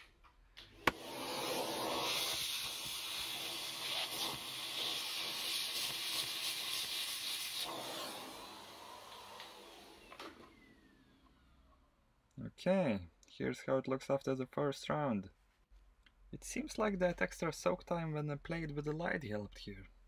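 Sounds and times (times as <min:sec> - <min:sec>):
vacuum nozzle hissing: 0:00.8 - 0:11.3.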